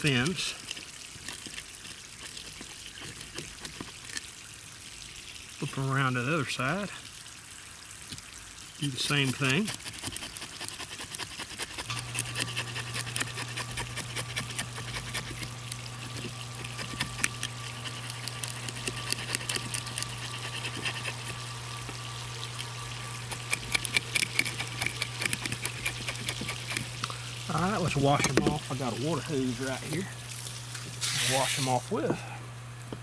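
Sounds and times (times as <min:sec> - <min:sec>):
fish scaler scraping scales: 0:00.0 - 0:04.4, 0:08.8 - 0:32.0
water pump humming: 0:00.0 - 0:33.0.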